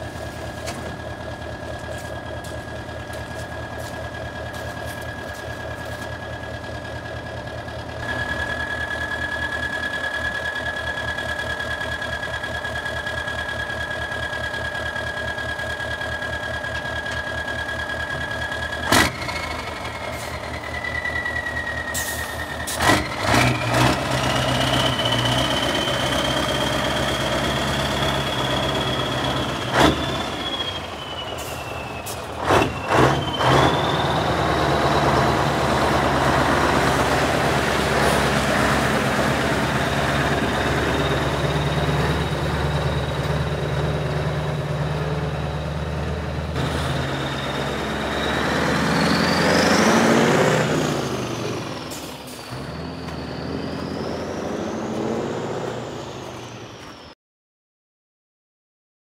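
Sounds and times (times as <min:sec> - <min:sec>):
diesel truck engine running: 0:00.0 - 0:57.1
engine whine: 0:00.0 - 0:57.2
thin steady whistle: 0:28.1 - 0:34.4.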